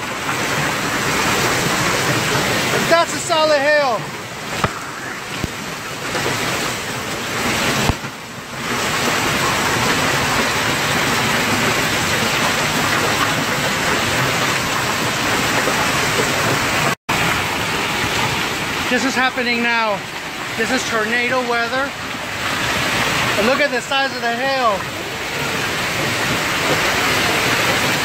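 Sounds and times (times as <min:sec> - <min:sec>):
hail pelting the ground: 0:00.0 - 0:28.0
sharp knocks: 0:04.6 - 0:06.2.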